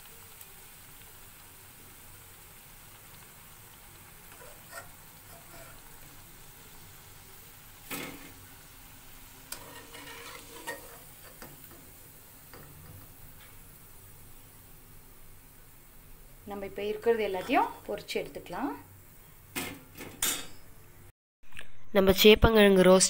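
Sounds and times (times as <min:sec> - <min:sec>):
food sizzling in oil: 0:00.0 - 0:20.8
spoon scraping and clinking pan: 0:04.4 - 0:05.9, 0:09.5 - 0:11.5.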